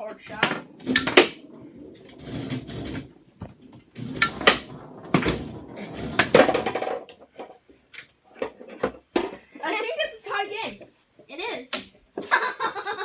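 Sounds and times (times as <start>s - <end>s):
ball slamming into table walls: 0.3s - 7.5s
foosball plastic clacks: 0.3s - 9.4s.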